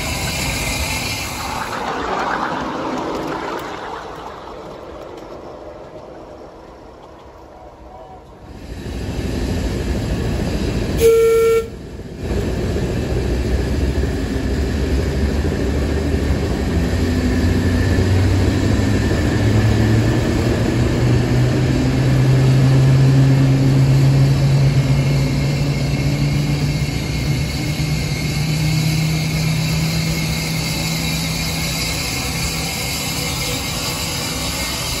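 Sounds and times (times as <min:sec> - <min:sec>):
diesel locomotive engine revving: 0:08.2 - 0:35.0
locomotive horn: 0:11.0 - 0:11.8.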